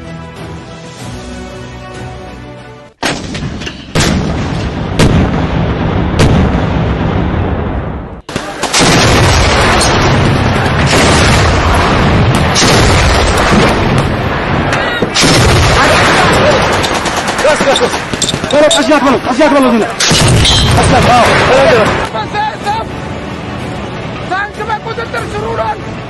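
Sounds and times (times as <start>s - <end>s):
continuous din of gunfire: 3.0s - 7.5s, 8.2s - 22.1s
heavy gunshots with echo: 3.0s - 18.7s.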